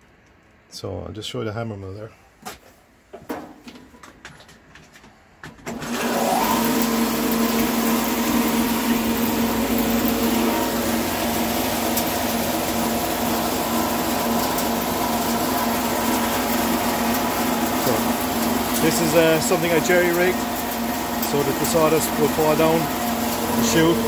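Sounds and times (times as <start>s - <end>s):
hammer mill whirring: 4.8s - 24.0s
steady hum: 7.3s - 24.0s.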